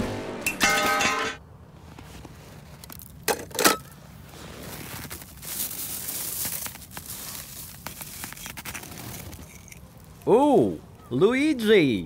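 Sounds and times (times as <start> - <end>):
rustling crinkling: 1.7 - 11.1.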